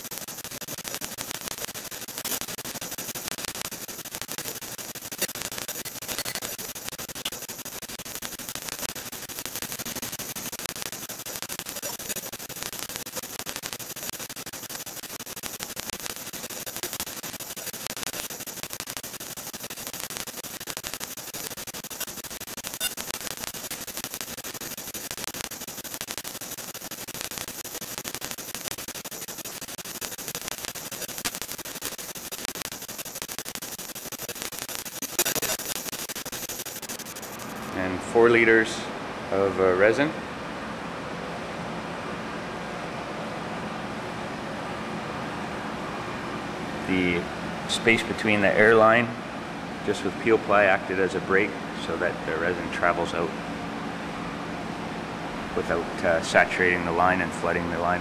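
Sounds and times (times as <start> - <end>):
crackling static: 0.0 - 38.6, 55.6 - 58.0.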